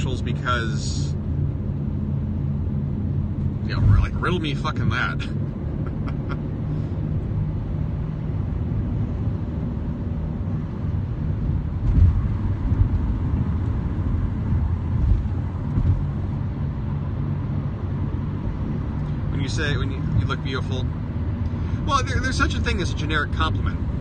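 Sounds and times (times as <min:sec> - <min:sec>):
car engine and road noise: 0:00.0 - 0:24.0
short low thumps: 0:11.8 - 0:16.4.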